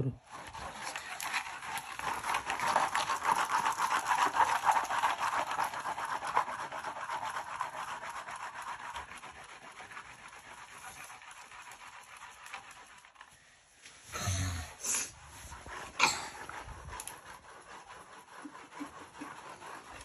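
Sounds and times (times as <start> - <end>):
handheld vacuum on carpet: 14.8 - 20.0.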